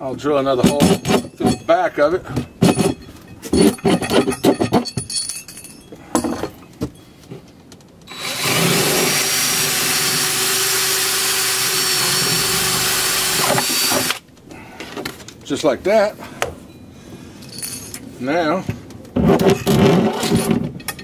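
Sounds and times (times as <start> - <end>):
cordless drill boring through plastic: 8.1 - 14.2.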